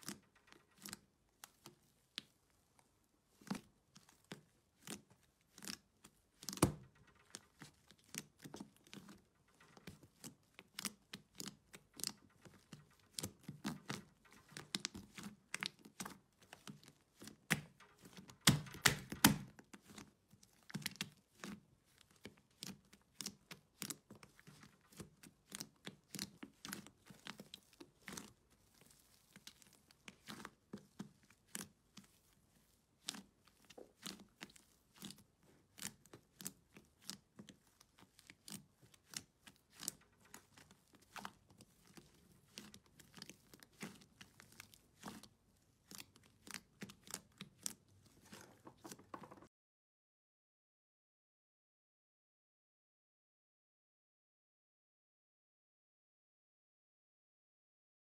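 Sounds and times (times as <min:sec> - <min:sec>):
sticky slime clicks and pops: 0:18.4 - 0:19.5.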